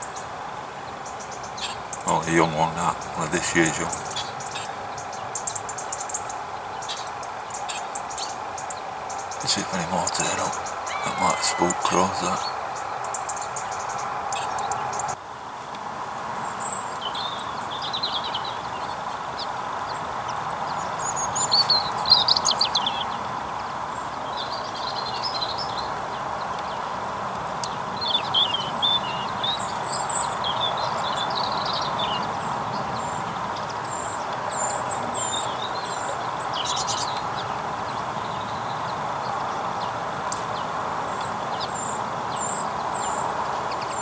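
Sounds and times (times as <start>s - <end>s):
songbirds chirping: 0.0s - 15.6s, 16.2s - 44.0s.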